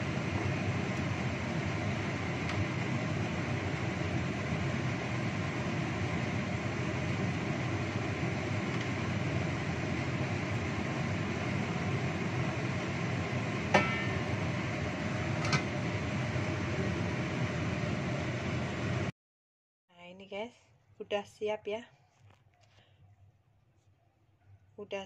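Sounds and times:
sauce simmering in a wok: 0.0 - 19.1
metal lid clanking on wok: 13.7 - 14.4.

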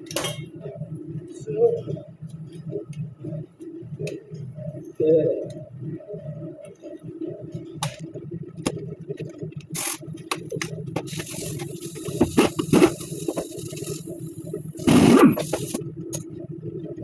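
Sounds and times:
compressed air hissing: 11.1 - 15.8.

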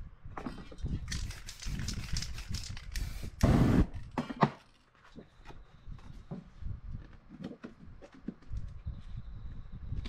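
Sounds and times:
spray can hissing: 1.2 - 3.9.

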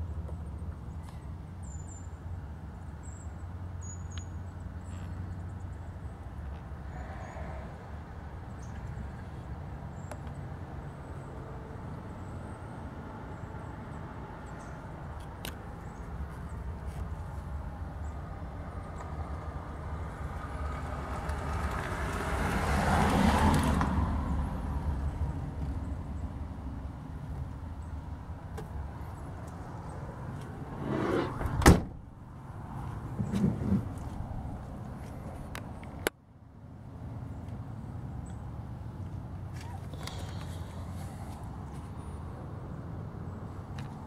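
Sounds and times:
vehicle passing: 28.8 - 36.0.

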